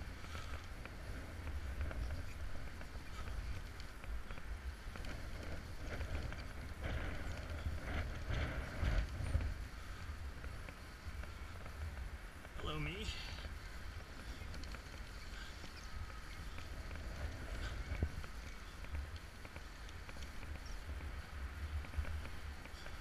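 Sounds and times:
rope and carabiners scraping and clicking: 0.0 - 12.6
wind noise on microphone: 0.0 - 23.0.

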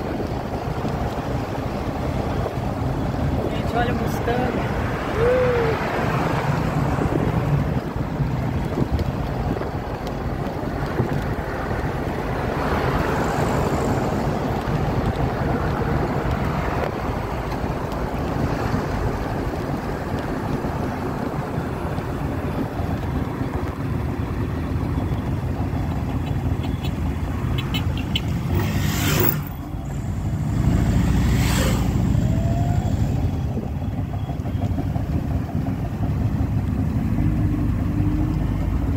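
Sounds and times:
car engine and road noise: 0.0 - 38.9.

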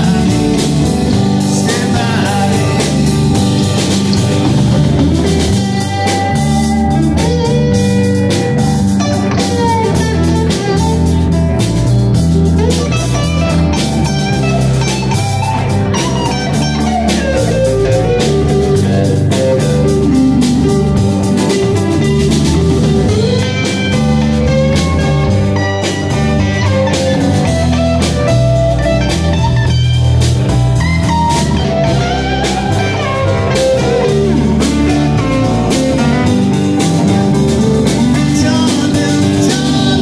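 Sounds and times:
blues band playing: 0.0 - 40.0
electric guitar lead: 0.0 - 40.0.

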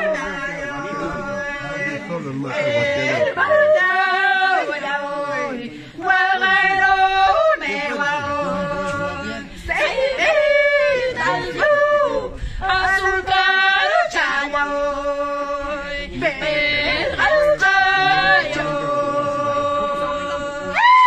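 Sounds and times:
man and woman singing: 0.0 - 21.0.

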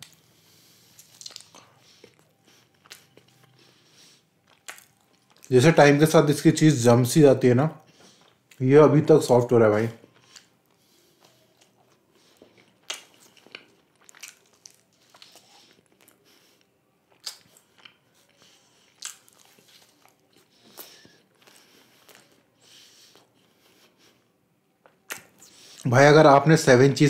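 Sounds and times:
lip smacks: 0.0 - 3.8, 4.4 - 5.5, 10.2 - 24.2, 24.8 - 25.9
close chewing with mouth sounds: 0.0 - 5.6, 7.8 - 8.6, 10.0 - 25.9.

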